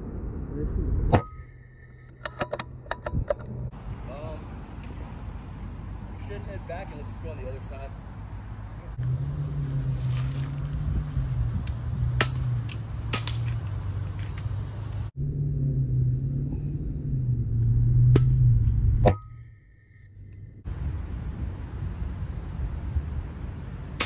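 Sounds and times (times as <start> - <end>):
low engine rumble: 2.7 - 24.0.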